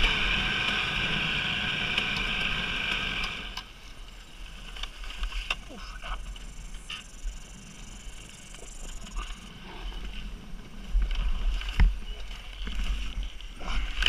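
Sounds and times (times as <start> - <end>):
dirt bike engine chugging: 0.0 - 4.7, 5.6 - 11.1.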